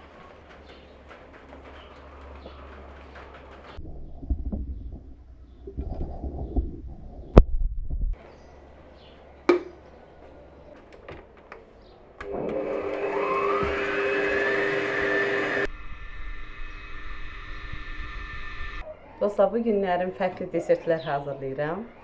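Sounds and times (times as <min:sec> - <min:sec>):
stand mixer motor whine: 0:12.2 - 0:15.7.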